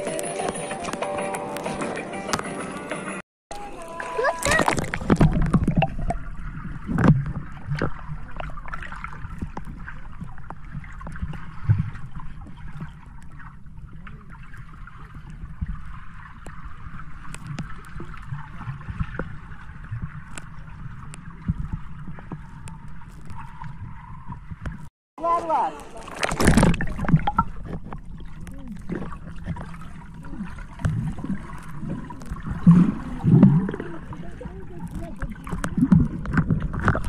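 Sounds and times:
muffled underwater water rushing: 0:03.5 - 0:37.0
dull underwater thumps: 0:04.3 - 0:12.9, 0:26.2 - 0:33.9
small underwater clicks: 0:06.8 - 0:24.9, 0:25.8 - 0:37.0.

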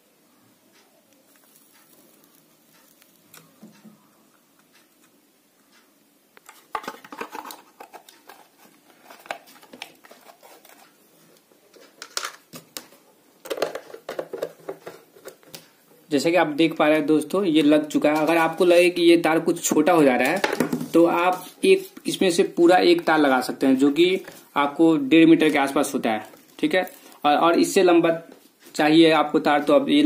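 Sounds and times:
plastic enclosure clicks and knocks: 0:20.3 - 0:20.9.

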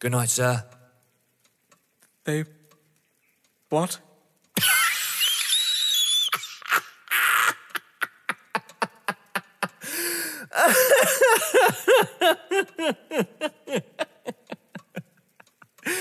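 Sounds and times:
man laughing: 0:04.6 - 0:16.0.

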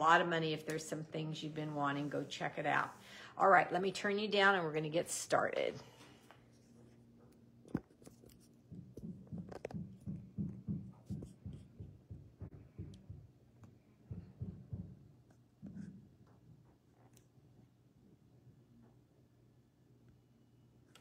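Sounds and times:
low steady hum: 0:00.0 - 0:21.0
muffled regular knocking: 0:08.7 - 0:16.4.

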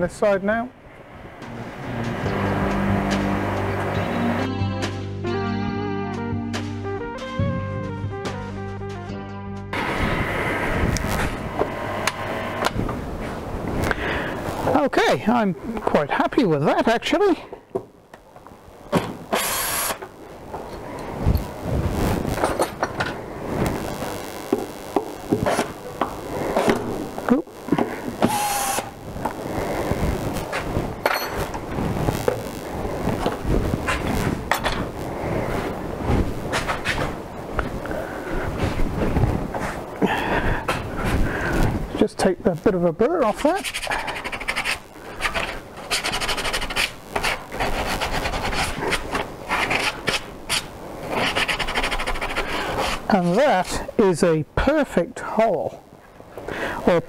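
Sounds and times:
hand tool scraping wood: 0:43.4 - 0:53.4.

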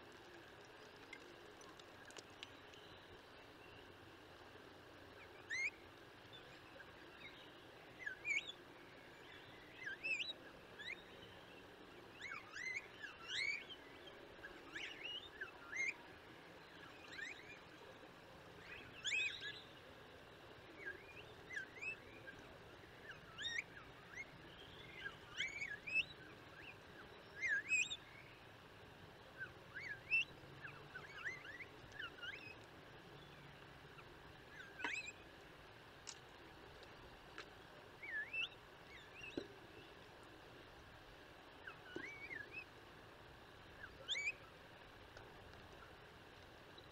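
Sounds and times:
faint steady hiss: 0:00.0 - 0:46.9
starlings chirping: 0:33.2 - 0:35.2, 0:38.0 - 0:39.9, 0:43.8 - 0:44.5.

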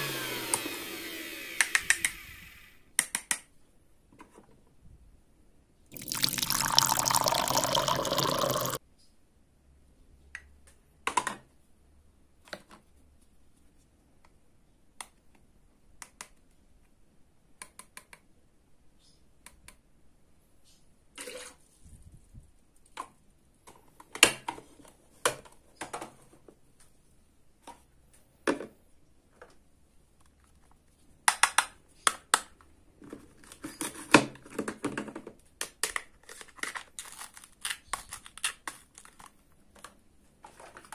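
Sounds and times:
liquid pouring into plastic cup: 0:05.9 - 0:08.8.

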